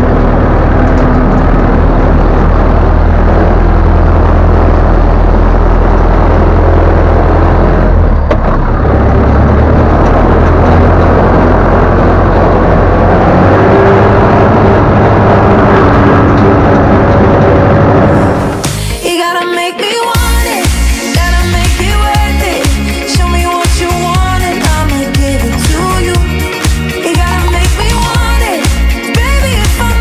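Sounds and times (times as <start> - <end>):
tractor diesel engine running: 0.0 - 19.0, 20.2 - 30.0.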